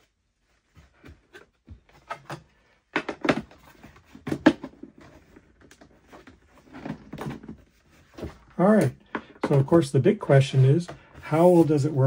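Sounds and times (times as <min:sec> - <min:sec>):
plastic parts knocking and clattering: 0:01.1 - 0:09.9.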